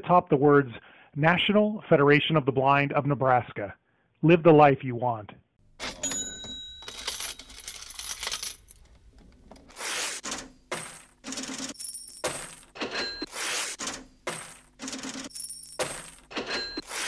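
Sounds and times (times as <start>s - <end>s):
metallic jingling and clinking: 5.8s - 8.9s, 10.7s - 13.3s, 14.3s - 17.0s.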